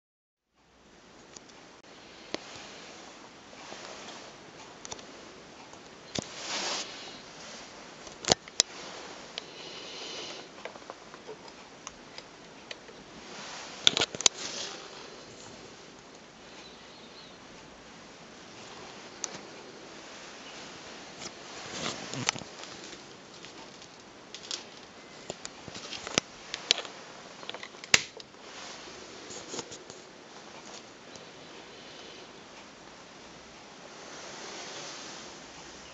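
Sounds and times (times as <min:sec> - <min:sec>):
hands handling lamp: 0:18.6 - 0:28.3.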